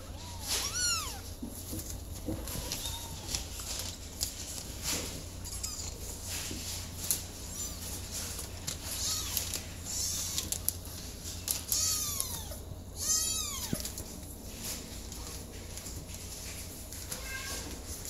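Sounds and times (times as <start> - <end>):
kittens mewing: 0.0 - 1.4, 2.4 - 3.6, 5.4 - 6.2, 8.8 - 10.8, 11.6 - 14.0.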